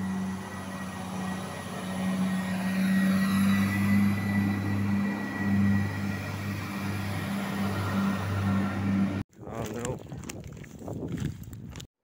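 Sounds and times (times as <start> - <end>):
diesel train engine hum: 0.0 - 9.2.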